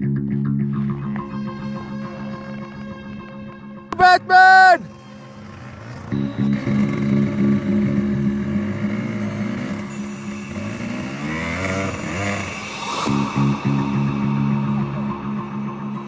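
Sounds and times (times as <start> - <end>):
dirt bike engine revving: 4.8 - 13.9.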